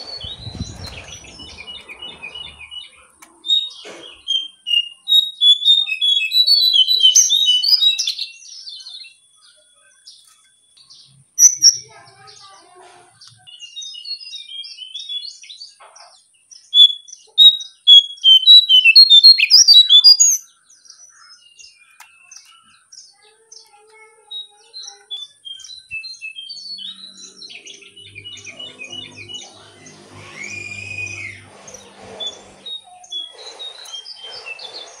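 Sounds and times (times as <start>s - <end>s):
bird chirping short high notes: 25.5s - 34.6s
low background drone: 26.9s - 32.7s.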